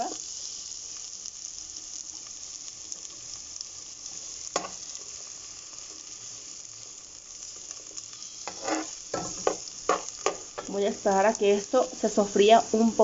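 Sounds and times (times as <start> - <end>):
onion sizzling in hot oil: 0.0 - 13.0
metal spoon scraping a pot: 8.4 - 10.7.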